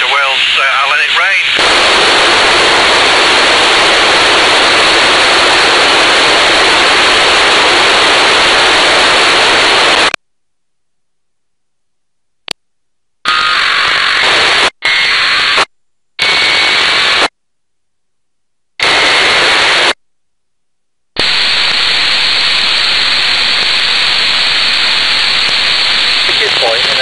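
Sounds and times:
radio receiver static hiss: 0:00.0 - 0:10.2, 0:13.2 - 0:17.4, 0:18.8 - 0:20.0, 0:21.2 - 0:27.0.

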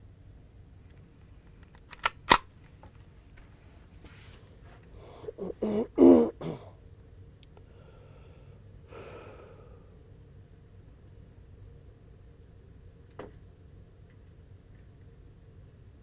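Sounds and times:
person clearing throat: 0:05.3 - 0:06.8.

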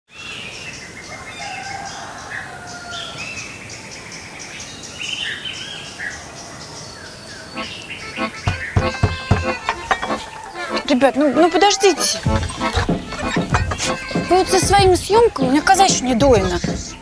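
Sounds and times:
songbirds chirping: 0:00.1 - 0:17.0
knocking on wooden door: 0:08.4 - 0:10.3, 0:12.2 - 0:17.0.

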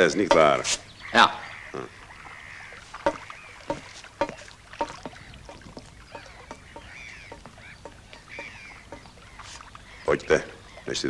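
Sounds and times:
bird calls: 0:00.0 - 0:11.0
footsteps walking: 0:02.8 - 0:09.7.

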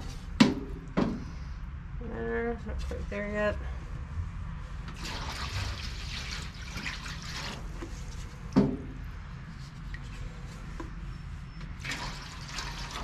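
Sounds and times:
water pouring into metal pan: 0:05.0 - 0:07.7, 0:11.8 - 0:13.0.

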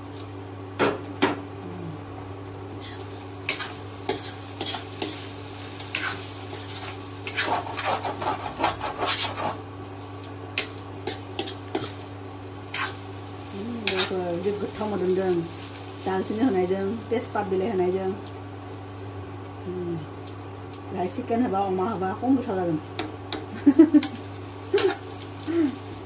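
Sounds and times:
food sizzling in a pot: 0:00.0 - 0:26.0
low steady hum: 0:00.0 - 0:26.0
utensil scraping a cooking pot: 0:05.9 - 0:09.6.

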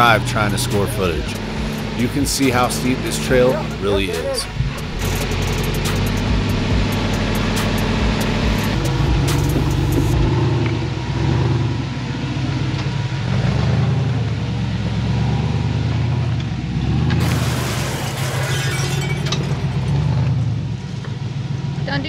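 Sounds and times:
buggy engine revving: 0:00.0 - 0:22.0
rush of noise: 0:02.8 - 0:10.4.

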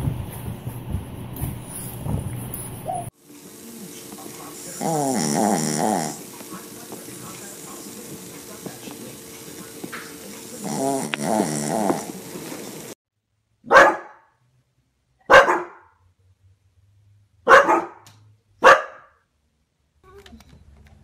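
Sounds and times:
dog barking: 0:13.6 - 0:14.4, 0:15.2 - 0:16.0, 0:17.4 - 0:19.2.

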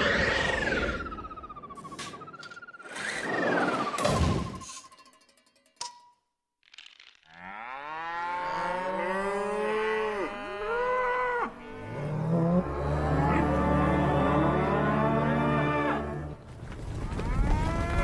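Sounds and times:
low steady moo: 0:07.3 - 0:16.3.

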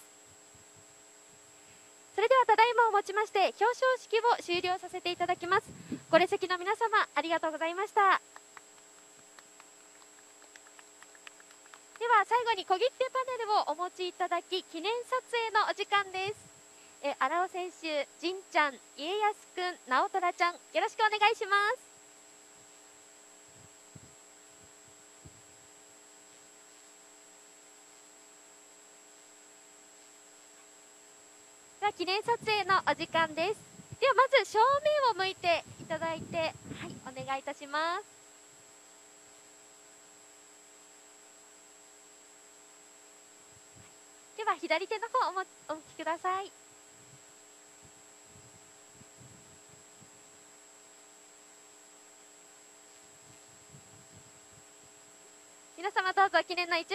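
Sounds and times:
electrical hum: 0:00.0 - 0:56.9
thin high whine: 0:00.0 - 0:56.9
high whine: 0:30.0 - 0:39.4.

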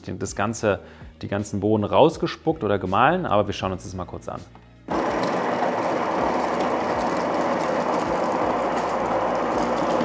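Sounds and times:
espresso grinder grinding beans: 0:04.9 - 0:10.0.

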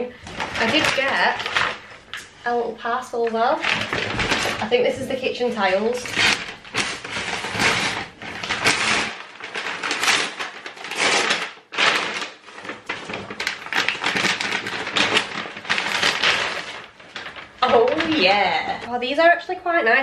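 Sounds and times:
paper and cardboard rustling: 0:00.0 - 0:18.9.

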